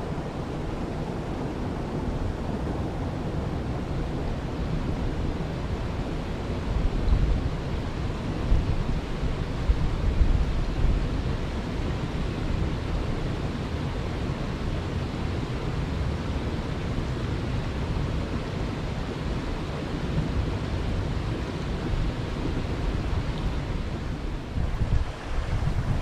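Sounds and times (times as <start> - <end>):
river flowing over rocks: 13.6 - 26.0
low uneven rumble: 21.3 - 26.0.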